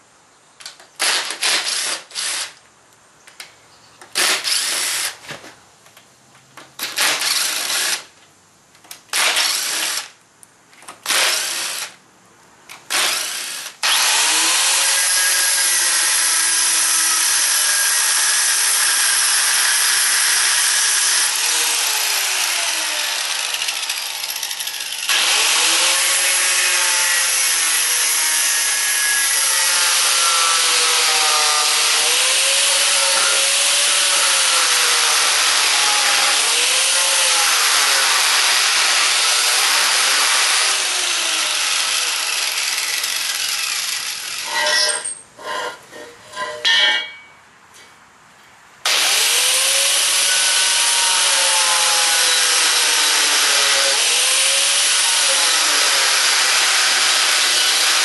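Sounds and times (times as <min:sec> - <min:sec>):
cordless drill driving screws: 0:01.0 - 0:02.6, 0:04.1 - 0:05.2, 0:06.8 - 0:08.1, 0:09.1 - 0:10.2, 0:11.0 - 0:12.0, 0:12.9 - 0:28.1
angle grinder grinding steel: 0:13.0 - 0:38.6, 0:39.2 - 0:47.3.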